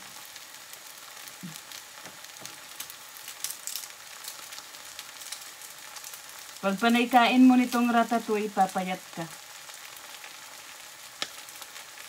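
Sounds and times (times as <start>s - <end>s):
vegetables sizzling in frying pan: 0.0s - 12.0s.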